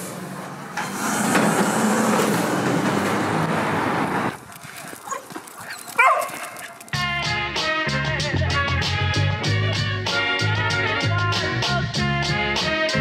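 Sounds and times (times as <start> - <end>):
vehicle rushing past: 0.0 - 4.4
street traffic: 0.0 - 7.3.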